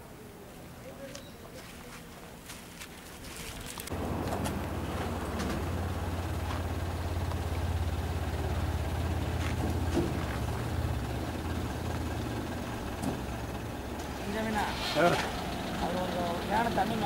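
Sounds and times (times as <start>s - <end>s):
bus engine idling: 3.9s - 17.0s.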